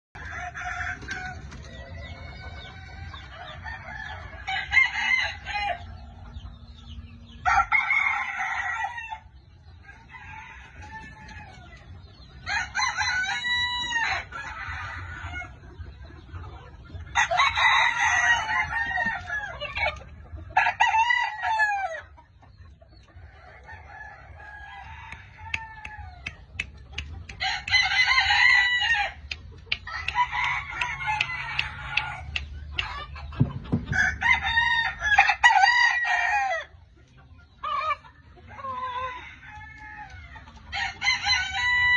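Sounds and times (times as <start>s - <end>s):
clucking calls: 25.1s - 33.9s.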